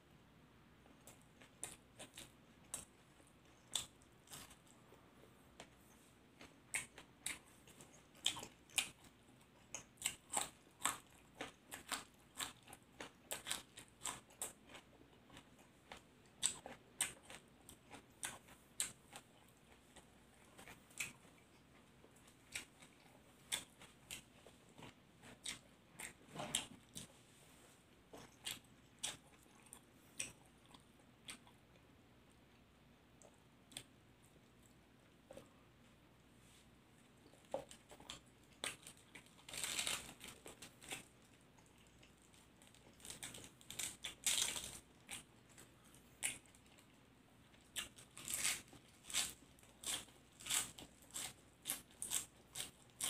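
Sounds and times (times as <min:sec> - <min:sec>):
person chewing crunchy food: 0:01.0 - 0:27.2, 0:28.1 - 0:31.8, 0:37.0 - 0:53.0.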